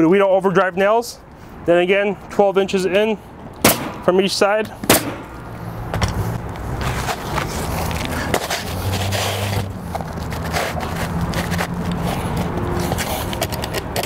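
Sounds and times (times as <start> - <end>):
shingle scraping on roof: 6.8 - 14.0.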